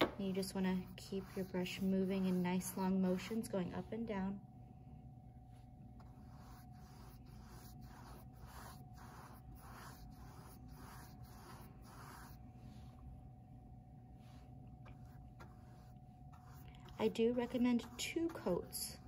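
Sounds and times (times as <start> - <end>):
paintbrush scratching on canvas: 0.3 - 3.5, 6.0 - 13.0, 14.2 - 19.0.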